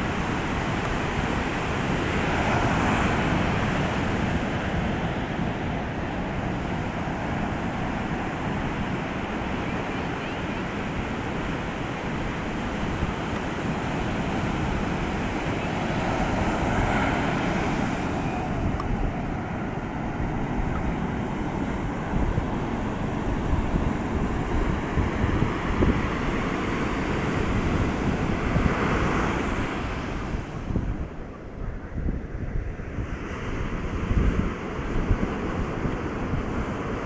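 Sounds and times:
surf breaking on beach: 0.0 - 31.1
wind buffeting microphone: 0.0 - 37.0.

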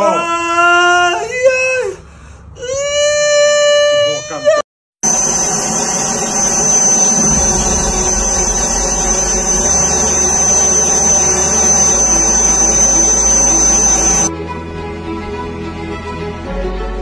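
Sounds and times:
high steady tone: 5.0 - 14.3
jet turbine whine: 5.0 - 14.3.

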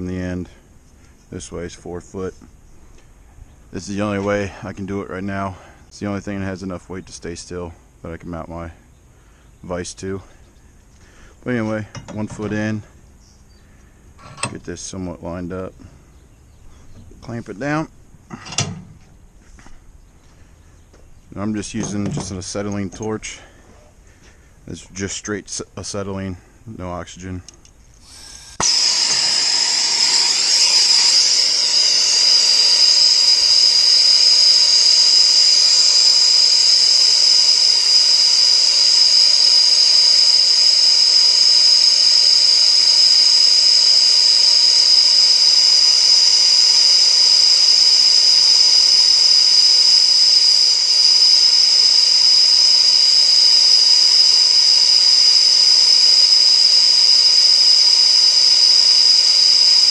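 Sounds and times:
gas torch hissing: 28.0 - 59.9.

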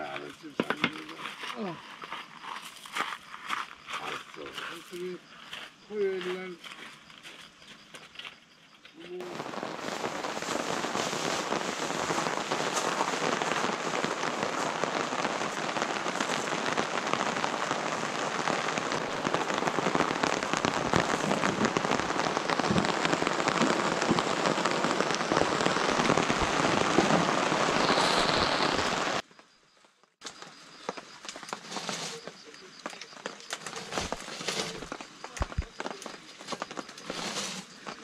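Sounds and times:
rain falling: 9.2 - 29.4, 30.1 - 38.0.

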